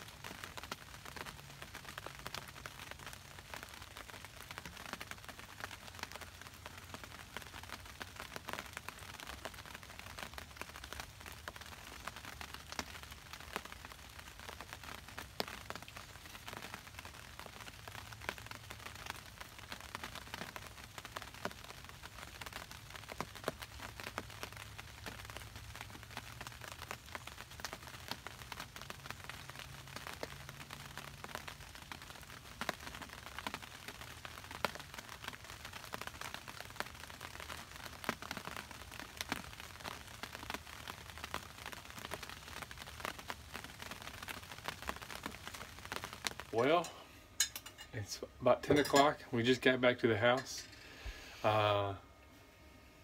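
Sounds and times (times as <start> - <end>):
light rain patter: 0.0 - 53.0.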